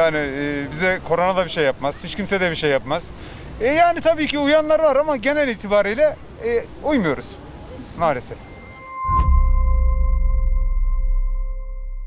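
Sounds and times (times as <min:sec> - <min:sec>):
bright chime-like tone: 0:08.4 - 0:12.0
sharp hit with deep boom: 0:09.0 - 0:12.0.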